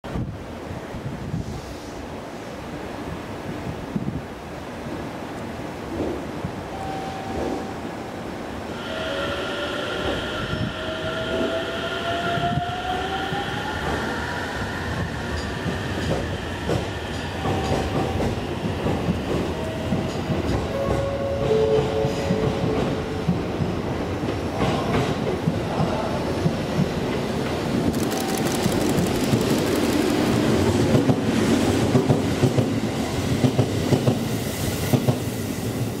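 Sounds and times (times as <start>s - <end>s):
electric train rumble and clatter: 10.0s - 36.0s.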